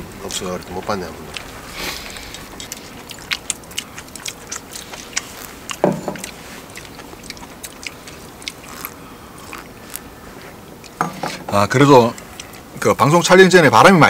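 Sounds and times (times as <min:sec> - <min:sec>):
people chewing food: 0:00.0 - 0:14.0.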